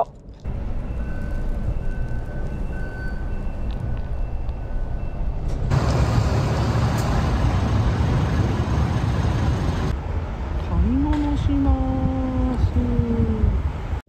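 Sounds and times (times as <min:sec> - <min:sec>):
low road rumble: 0:00.0 - 0:14.0
truck hiss and rumble: 0:05.5 - 0:10.0.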